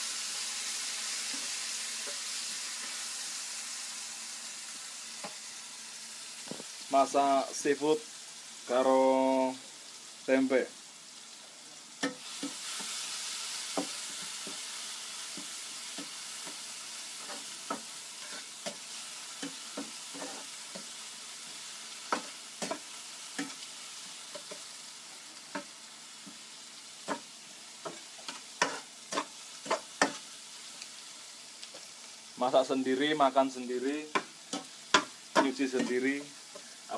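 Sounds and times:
seafood sizzling in a pan: 0.0s - 36.9s
utensil scraping a pan: 17.2s - 18.8s, 19.4s - 20.9s, 27.9s - 30.2s.

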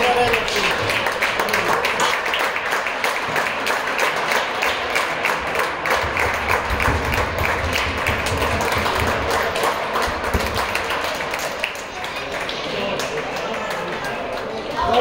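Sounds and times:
crowd applause: 0.0s - 15.0s.

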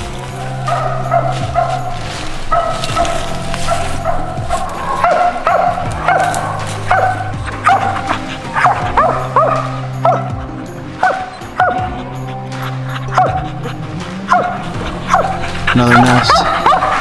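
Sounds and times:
background music: 0.0s - 17.0s
dog barking sharply: 2.5s - 10.3s, 14.3s - 17.0s.

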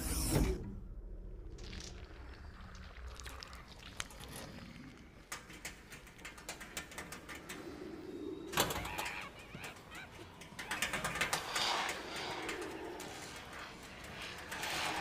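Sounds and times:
rapid irregular clicking: 3.7s - 15.0s
warbling chirping chatter: 7.2s - 15.0s.

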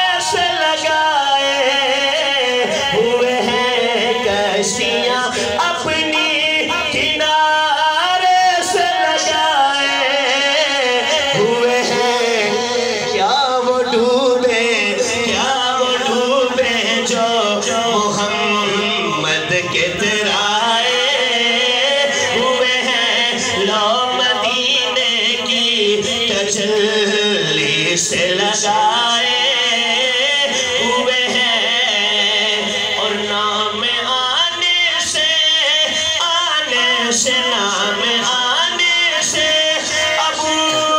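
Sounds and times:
man singing over loudspeakers: 0.0s - 40.9s.

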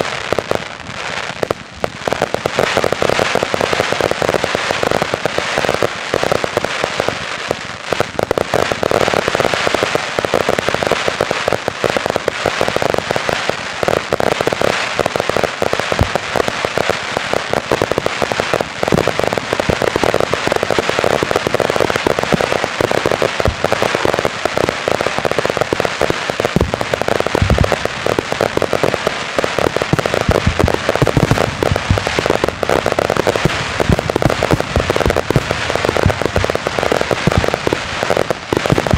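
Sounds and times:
fireworks crackling and popping: 0.0s - 38.9s
deep firework booms: 10.8s - 38.9s.

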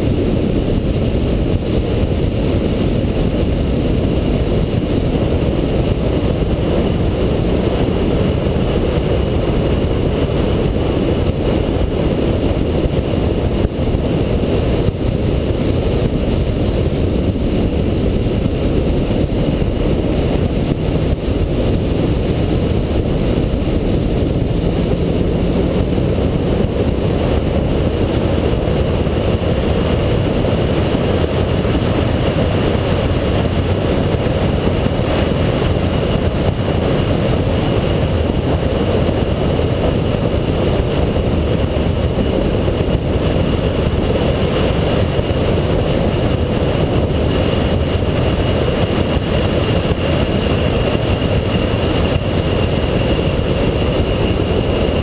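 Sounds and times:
heavy wind: 0.0s - 55.0s
road rumble: 0.0s - 55.0s
car engine cruising: 19.2s - 30.4s.

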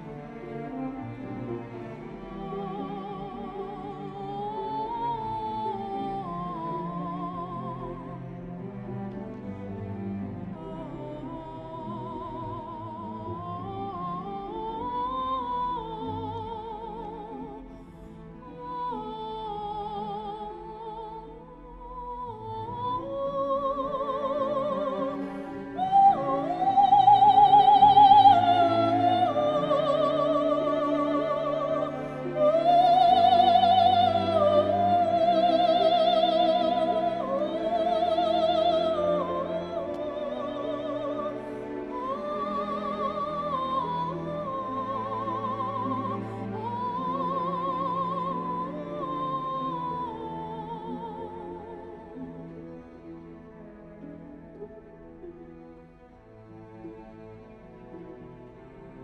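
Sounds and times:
operatic singing: 0.0s - 59.0s.

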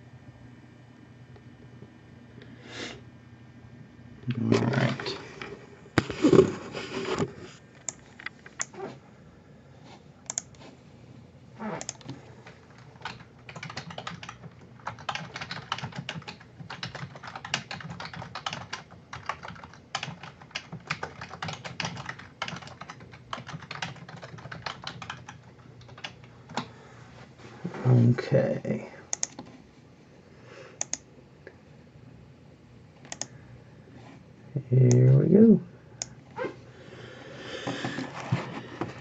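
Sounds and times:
typing on a computer keyboard: 10.3s - 10.5s, 11.8s - 26.7s, 29.1s - 29.5s, 33.0s - 33.3s.

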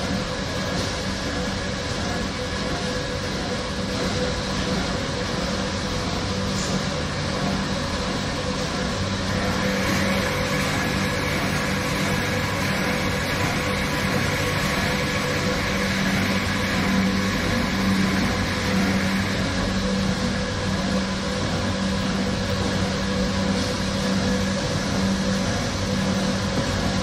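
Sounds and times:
machine running with low hum: 0.0s - 27.0s.

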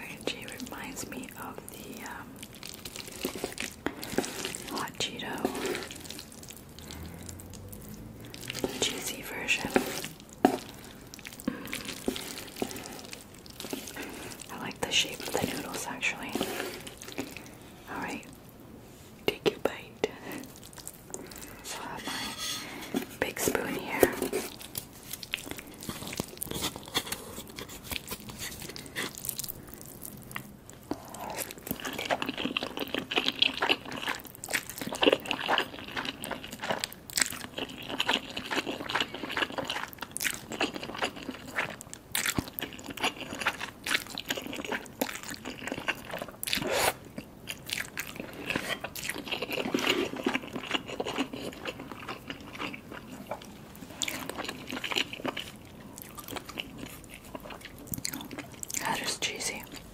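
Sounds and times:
wet sticky chewing: 0.3s - 18.4s, 19.5s - 59.9s
slurping noodles: 2.8s - 4.8s, 5.4s - 14.5s, 42.7s - 47.0s.

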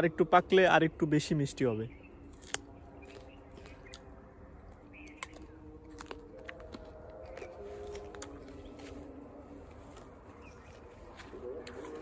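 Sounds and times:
faint steady tones: 0.0s - 12.0s
person crunching fruit: 2.2s - 9.0s.

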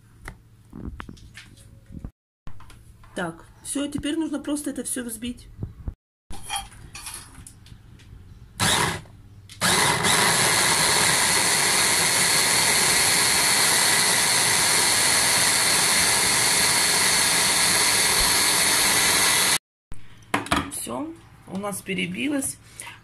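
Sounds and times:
hand blender motor running: 8.6s - 19.6s.

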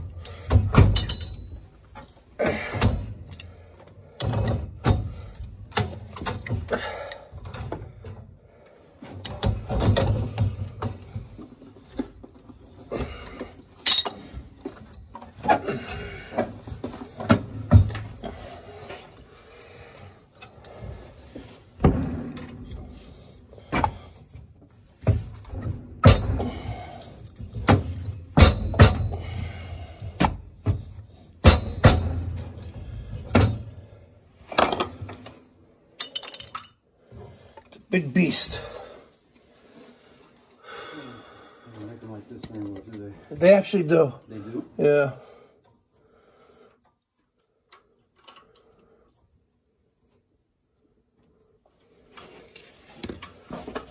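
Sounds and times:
metal clanks and rattles: 0.0s - 8.4s, 9.0s - 18.8s, 21.7s - 36.8s.

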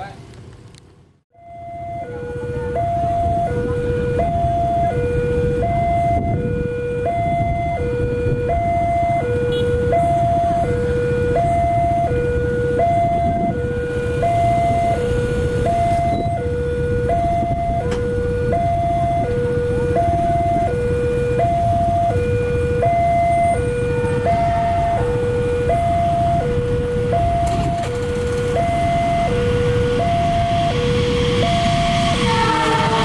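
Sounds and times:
two-tone crossing alarm: 1.3s - 33.0s
low rumble: 25.9s - 33.0s.

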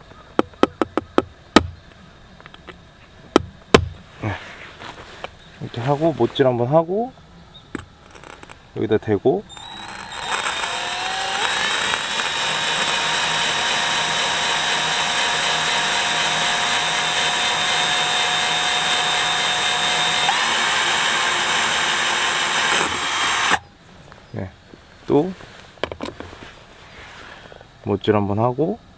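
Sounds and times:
drill whining through tile: 8.1s - 8.6s, 9.5s - 23.6s.

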